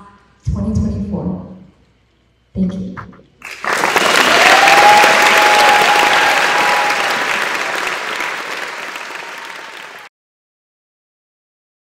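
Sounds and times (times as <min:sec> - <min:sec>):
audience applauding: 0:03.4 - 0:10.1.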